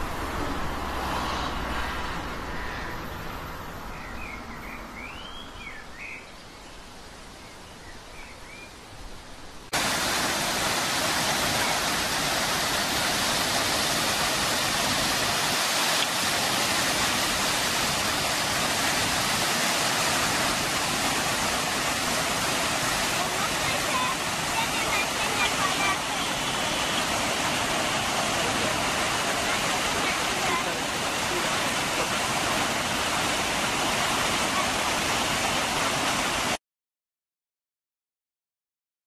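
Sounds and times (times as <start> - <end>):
bird chirps: 4.0 - 6.4
waterfall rushing: 9.7 - 36.6.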